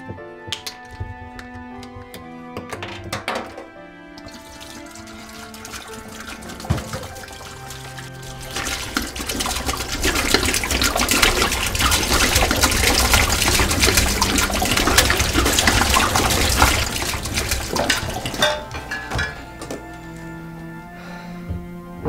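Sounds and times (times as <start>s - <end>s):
liquid splashing into sink: 4.2s - 20.2s.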